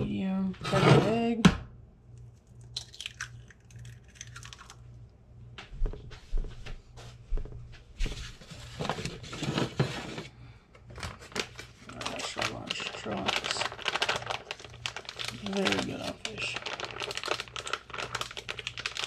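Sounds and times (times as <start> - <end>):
low steady hum: 0.0 - 19.0
paper rustling and crinkling: 8.0 - 10.3, 10.9 - 19.0.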